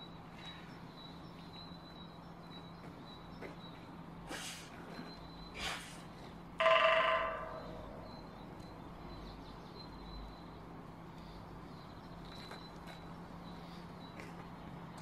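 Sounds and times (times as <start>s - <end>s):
woodpecker drumming on metal: 6.6s - 8.4s
metal ringing bell-like: 6.6s - 8.5s.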